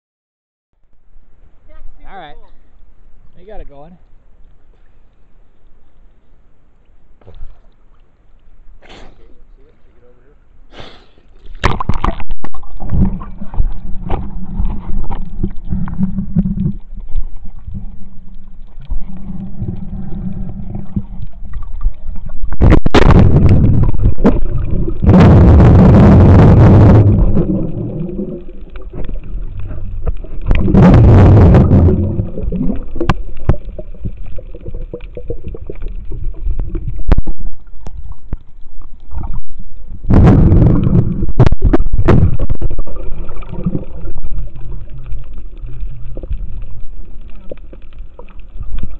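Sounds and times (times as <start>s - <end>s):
underwater low rumble: 0.8s - 48.9s
water gurgling: 11.3s - 48.9s
water rushing bursts: 11.5s - 48.9s.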